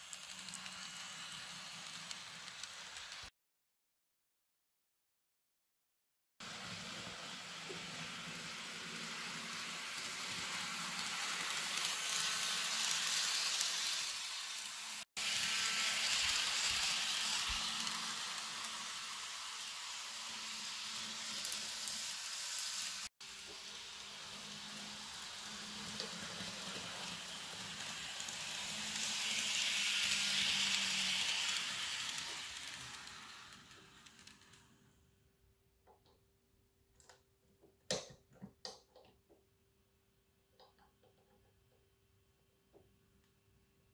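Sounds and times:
model train wheels rattling: 0:25.0 - 0:34.8.

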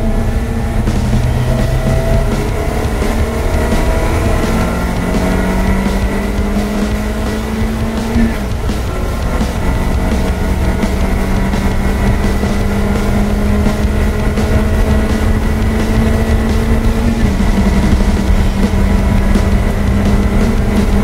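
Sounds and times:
car engine running hard: 0:00.0 - 0:21.0
road and tyre noise: 0:00.0 - 0:21.0.

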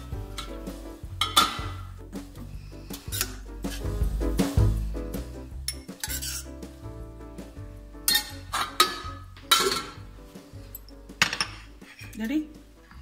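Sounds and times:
cutlery and dishes clinking: 0:00.0 - 0:01.9, 0:03.0 - 0:03.8, 0:05.7 - 0:06.5, 0:08.1 - 0:10.0, 0:10.6 - 0:12.4
background music: 0:00.0 - 0:13.0.

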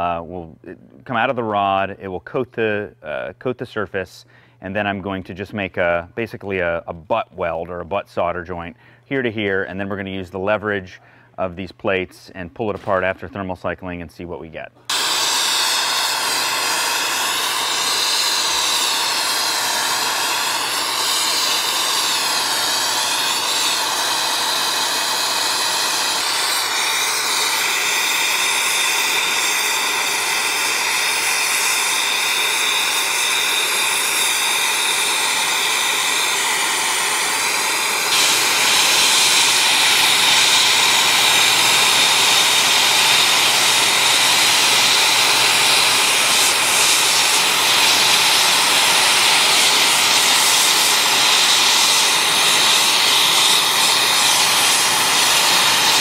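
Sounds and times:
torch flame hissing: 0:14.9 - 0:56.0.

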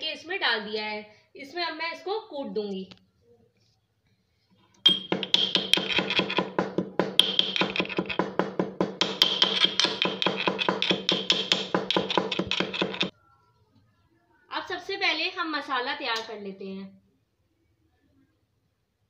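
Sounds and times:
steel pestle pounding in mortar: 0:04.9 - 0:13.1.

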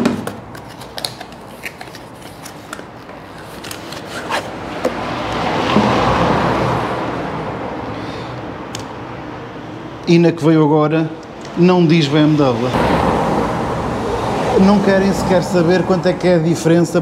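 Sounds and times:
rush of noise: 0:12.3 - 0:17.0.

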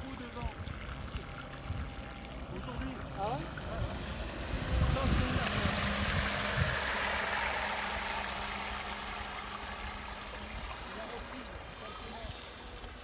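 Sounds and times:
rush of water and spray: 0:00.0 - 0:13.0.

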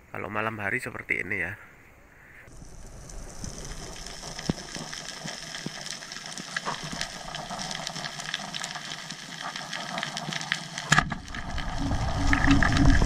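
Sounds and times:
snapping shrimp crackle: 0:02.8 - 0:11.4.

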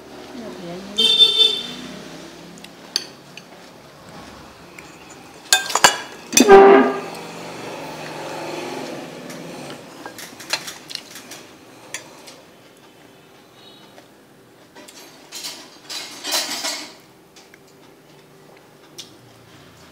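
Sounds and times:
loud horn honk: 0:01.0 - 0:02.0, 0:06.3 - 0:08.8
spoon clinking on ceramic: 0:05.5 - 0:06.6.

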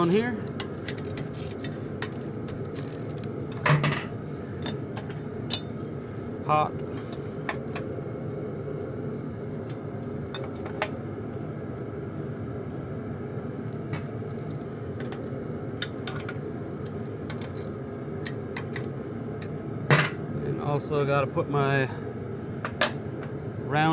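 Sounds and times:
low drone of shop machinery: 0:00.0 - 0:23.9.

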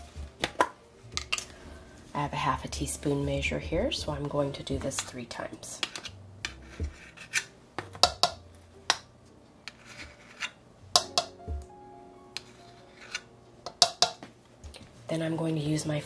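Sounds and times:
metal spoon scraping and clicking: 0:04.9 - 0:09.0, 0:09.6 - 0:11.2, 0:12.4 - 0:14.2.

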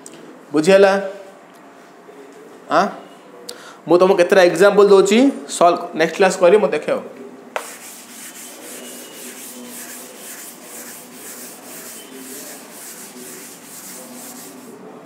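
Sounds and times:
eraser scrubbing a blackboard: 0:07.6 - 0:14.8.

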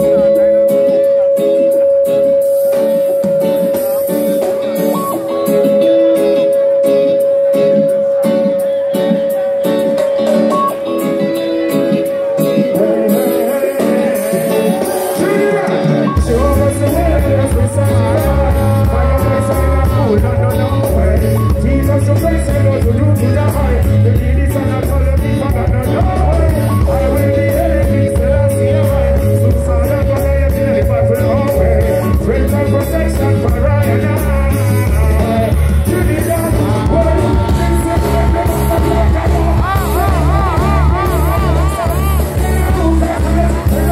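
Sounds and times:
live reggae band playing: 0:00.0 - 0:43.9
heavy bass line: 0:12.5 - 0:43.9.

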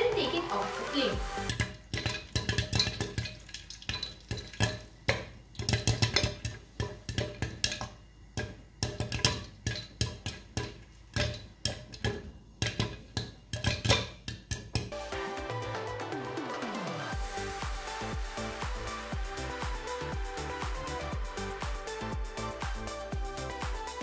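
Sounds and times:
background music: 0:00.0 - 0:01.6, 0:14.9 - 0:24.0
popcorn popping in a pot: 0:01.1 - 0:15.1.

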